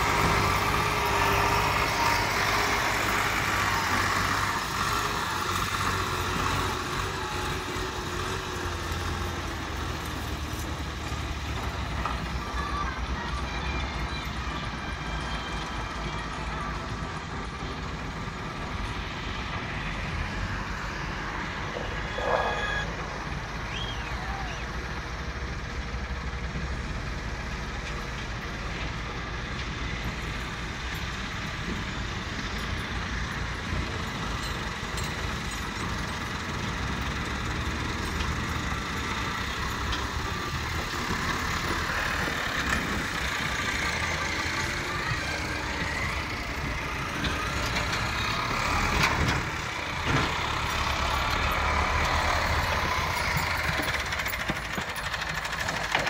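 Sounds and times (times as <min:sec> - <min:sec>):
excavator diesel engines: 0:00.0 - 0:56.0
tractor driving up: 0:00.0 - 0:56.0
tractor engine idling: 0:00.0 - 0:56.0
brief squeal: 0:21.7 - 0:23.0.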